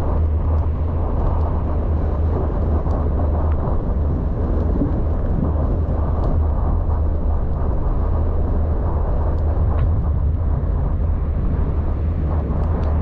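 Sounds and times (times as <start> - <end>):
car engine rumble: 0.0 - 13.0
road noise: 0.0 - 13.0.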